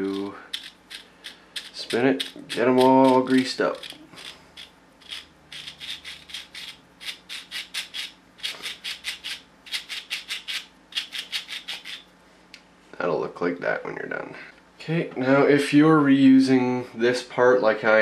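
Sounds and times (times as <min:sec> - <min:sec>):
gears clicking: 0:00.0 - 0:12.0.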